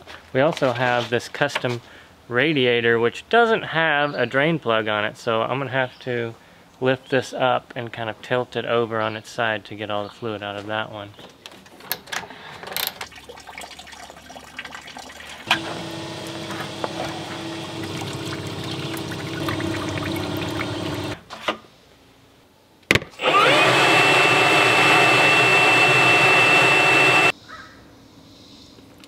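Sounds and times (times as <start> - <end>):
liquid pouring into plastic bucket: 13.0 - 21.2
leaf blower whine: 15.4 - 21.2, 23.2 - 27.3.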